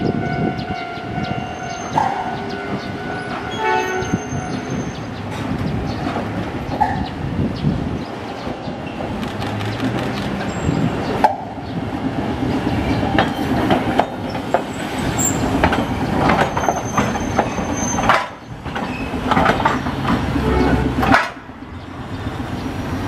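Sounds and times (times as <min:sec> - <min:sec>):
tram wheels knocking over rail joints: 0:08.7 - 0:21.7.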